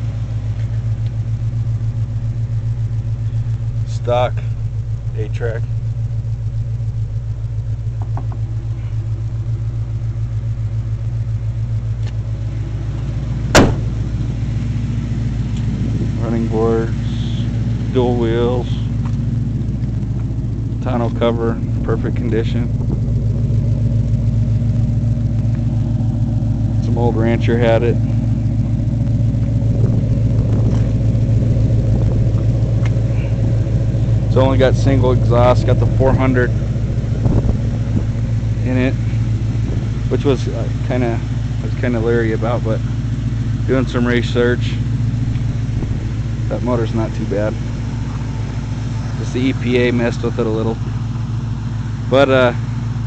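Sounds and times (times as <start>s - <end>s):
truck engine idling: 0.0s - 53.0s
sharp knock: 13.5s - 14.0s.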